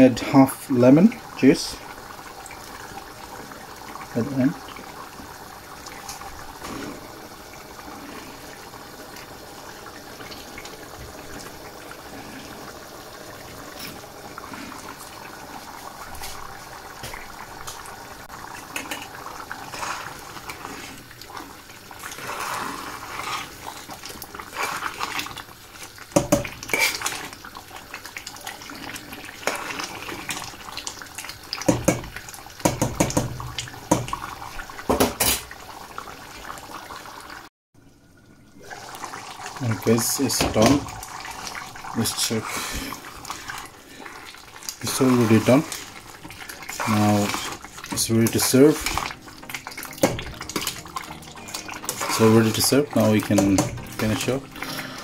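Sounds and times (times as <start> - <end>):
curry simmering and bubbling: 0.0 - 55.0
metal spoon knocking against pan: 31.7 - 34.1.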